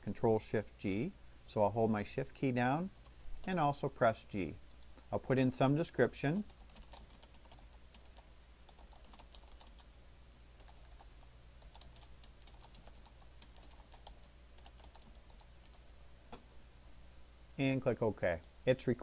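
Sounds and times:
faint typing on keyboard: 3.0 - 3.6, 4.6 - 5.1, 6.3 - 10.0, 10.6 - 16.4.

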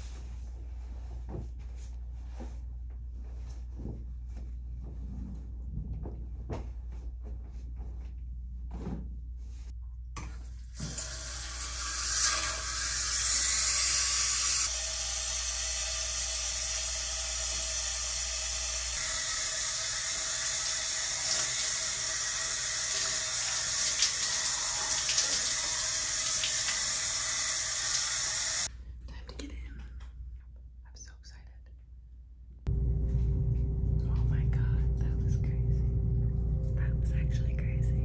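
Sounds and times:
shower water spraying: 10.8 - 28.7.

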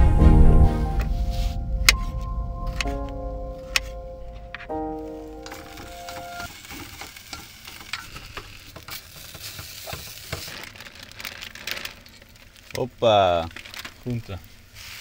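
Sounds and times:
food sizzling in a frying pan: 5.5 - 10.6, 14.7 - 15.0.

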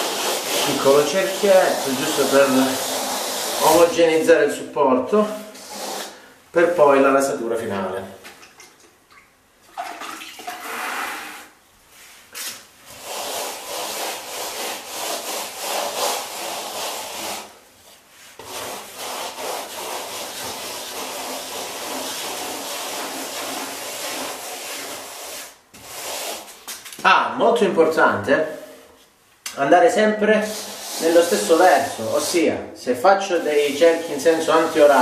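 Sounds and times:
wet sponge scrubbing plaster: 0.0 - 4.2, 12.4 - 26.8, 30.4 - 32.4, 33.2 - 35.0.

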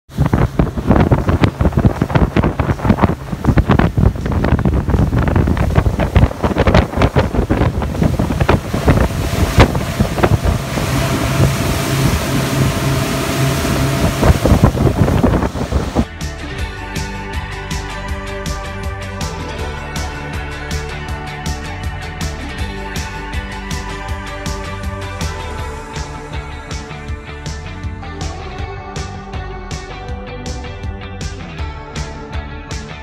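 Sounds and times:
wind buffeting microphone: 0.1 - 16.1
outboard motor drone: 0.1 - 32.1
music: 0.1 - 33.0.

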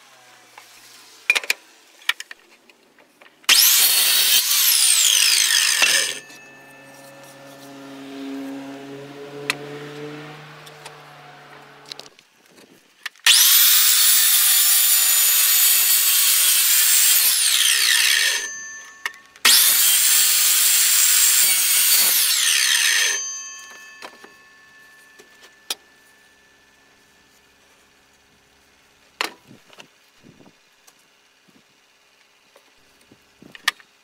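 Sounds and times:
miter saw cutting wood: 3.5 - 12.1, 13.2 - 26.0.

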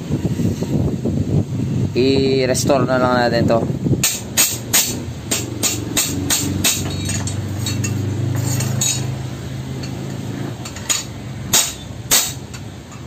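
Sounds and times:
hammer clinking on metal: 4.0 - 9.2, 9.8 - 13.0.

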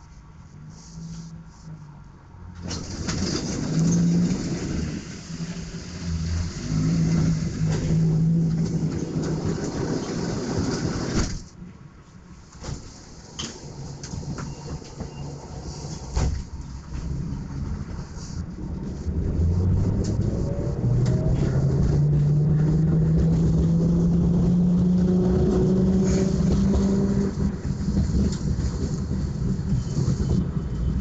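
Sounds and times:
tram machinery humming: 0.0 - 31.0
cabin rumble: 2.6 - 11.5, 12.5 - 31.0.

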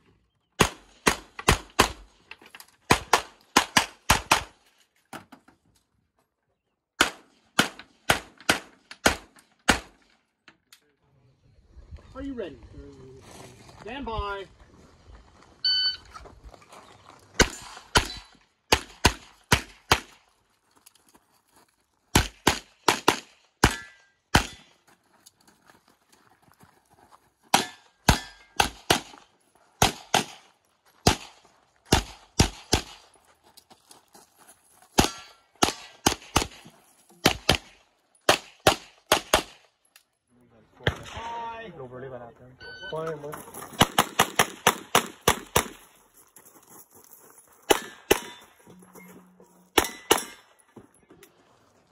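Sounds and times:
pistol shots: 2.9 - 4.6, 7.0 - 10.0, 17.4 - 20.2, 22.2 - 24.7, 27.5 - 29.2, 29.8 - 33.0, 35.0 - 36.6, 37.2 - 39.6, 43.8 - 45.8, 47.7 - 48.4, 49.8 - 50.5.

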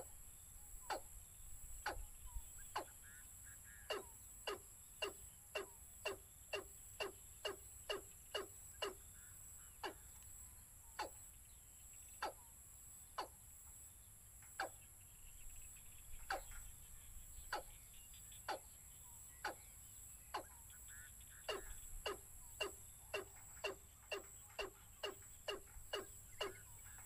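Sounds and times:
bird calling sharp notes: 1.8 - 10.2, 20.3 - 27.0.

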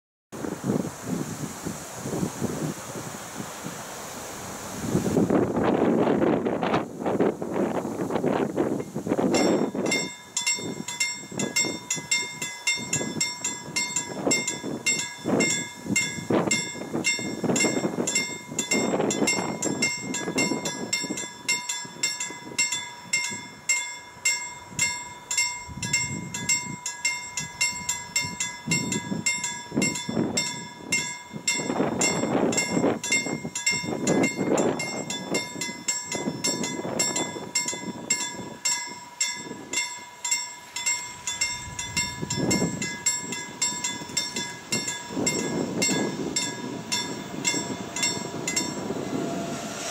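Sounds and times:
level crossing warning bell: 9.2 - 49.3
low rumbling noise: 41.0 - 49.9.

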